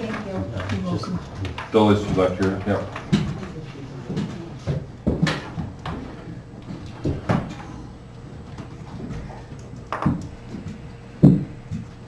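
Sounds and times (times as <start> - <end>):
knocks and thumps: 9.9 - 11.9.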